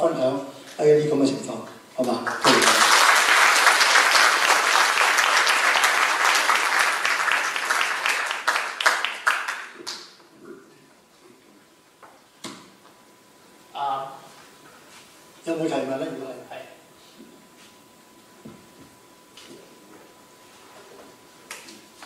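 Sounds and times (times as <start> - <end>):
audience applauding: 2.1 - 10.1.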